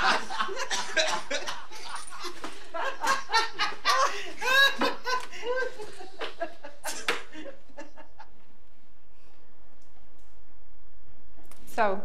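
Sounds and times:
person laughing: 0.2 - 8.1.

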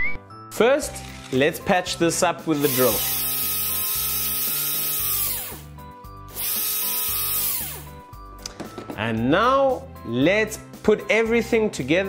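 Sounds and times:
background music: 0.0 - 12.0
drill whirring: 2.6 - 5.7, 6.3 - 8.0.

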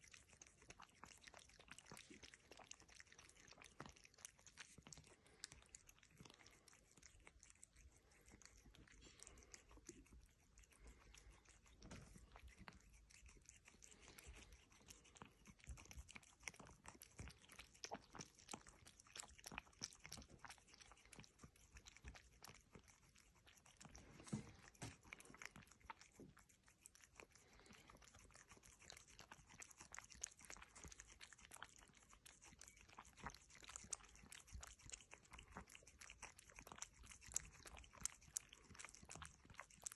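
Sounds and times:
cat licking and sucking milk: 0.0 - 39.9
rapid tongue and mouth clicks: 0.0 - 39.9.

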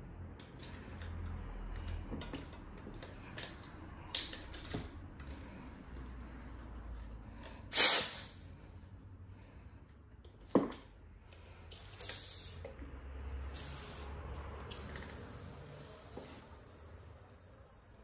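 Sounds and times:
compressed air hissing bursts: 7.7 - 8.5, 11.7 - 12.6, 13.2 - 17.8.

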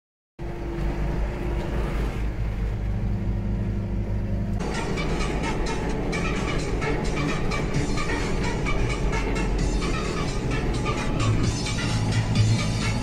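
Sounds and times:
tractor diesel engine running: 0.4 - 13.0
music with a beat: 4.6 - 13.0.

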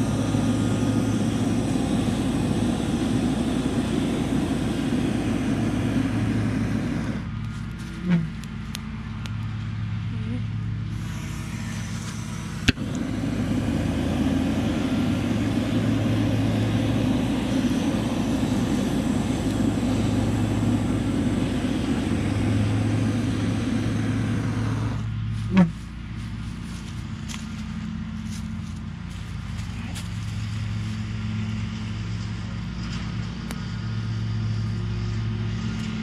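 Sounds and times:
propane torch burning: 0.0 - 9.6, 10.8 - 25.6
torch lighting pop: 12.0 - 13.0.

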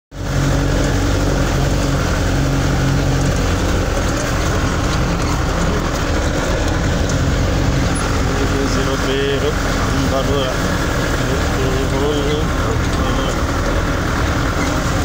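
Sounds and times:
tyre and road noise: 0.1 - 15.0
van engine humming: 0.1 - 15.0.

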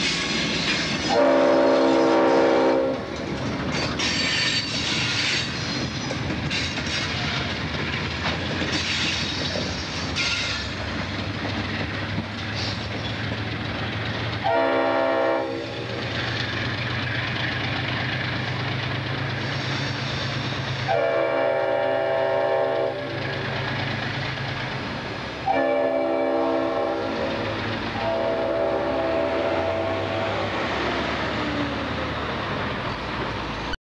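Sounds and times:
train wheels clattering over rail joints: 0.0 - 1.8, 2.8 - 14.8, 15.6 - 20.9
locomotive air horn blasts: 1.1 - 3.0, 14.4 - 15.7, 20.9 - 23.2, 25.4 - 27.4, 28.0 - 30.4.

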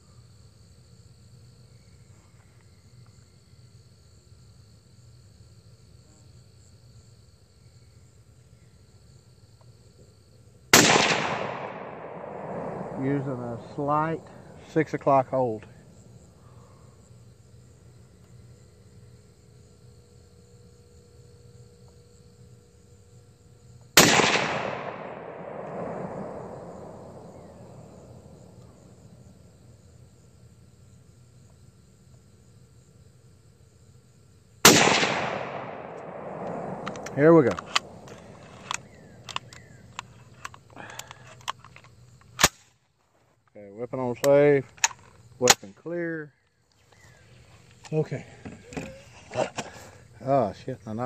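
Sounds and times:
insects chirring: 0.0 - 51.0
rifle shot: 10.7 - 14.5, 24.0 - 28.7, 34.6 - 39.8
rolling echo: 10.7 - 15.8, 24.0 - 29.2, 34.7 - 40.1
low background rumble: 24.2 - 30.4.

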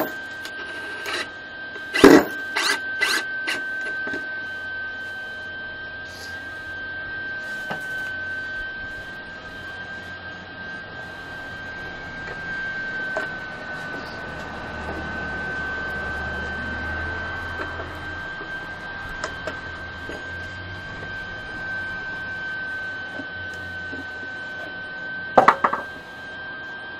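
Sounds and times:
high-pitched whine: 0.0 - 26.9
low hum: 0.0 - 26.9.

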